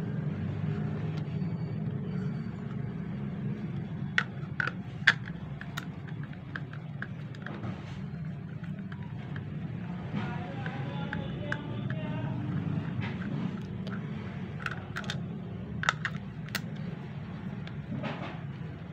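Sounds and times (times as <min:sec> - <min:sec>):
plastic clicks and taps: 0:03.8 - 0:09.5, 0:10.2 - 0:15.2, 0:15.8 - 0:18.4.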